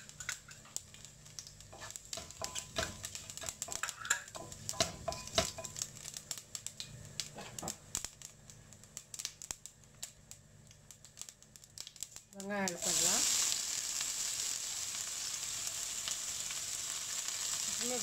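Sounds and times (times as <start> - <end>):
seeds spluttering in hot oil: 0.0 - 18.0
spoon scraping pot: 1.7 - 5.7.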